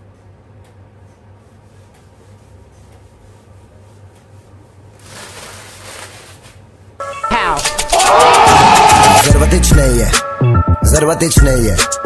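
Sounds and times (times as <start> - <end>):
newspaper rustling: 4.9 - 6.7
newspaper crumpling: 5.0 - 6.7.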